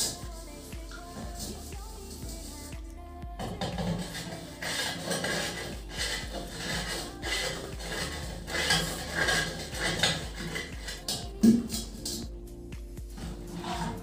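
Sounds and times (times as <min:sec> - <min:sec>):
hand scraping rice on metal plate: 0:04.0 - 0:11.0.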